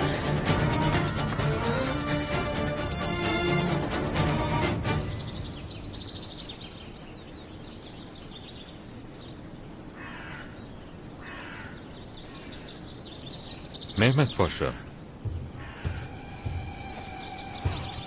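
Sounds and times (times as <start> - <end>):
small birds chirping: 3.8 - 18.0
crow cawing: 10.0 - 10.6, 11.2 - 12.6, 14.7 - 18.0.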